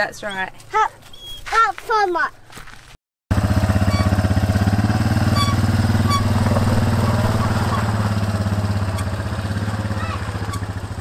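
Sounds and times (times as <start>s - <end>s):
quad bike engine idling: 3.3s - 11.0s.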